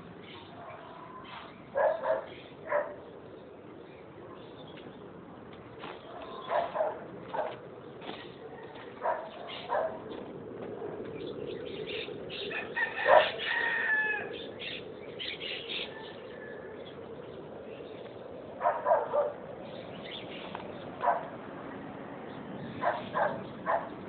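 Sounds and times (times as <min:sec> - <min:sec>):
dog barking: 0:01.8 - 0:03.0, 0:06.2 - 0:07.6, 0:09.0 - 0:10.1, 0:13.0 - 0:13.4, 0:18.6 - 0:19.4, 0:21.0 - 0:21.3, 0:22.8 - 0:24.0.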